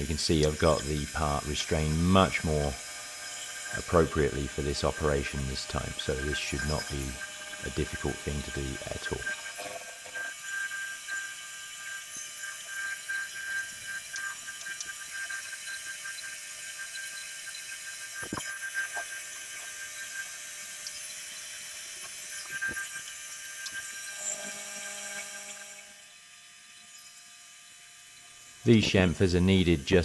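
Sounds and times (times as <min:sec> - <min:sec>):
milling machine whine: 0:00.0 - 0:30.0.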